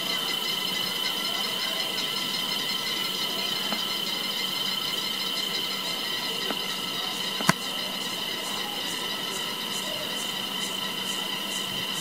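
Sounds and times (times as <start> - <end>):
cicadas droning: 0.0 - 12.0
sharp click: 7.4 - 7.6.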